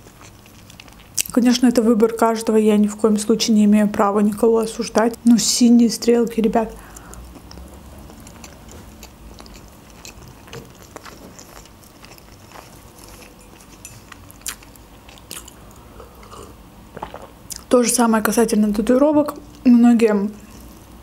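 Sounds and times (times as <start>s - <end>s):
chewing: 0.0s - 1.4s, 6.8s - 17.7s, 20.4s - 20.8s.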